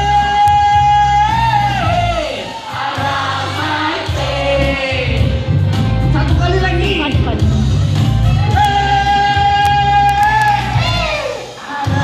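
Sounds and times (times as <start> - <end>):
man singing: 0.0 - 2.5, 8.4 - 12.0
backing music with steady bass: 0.0 - 12.0.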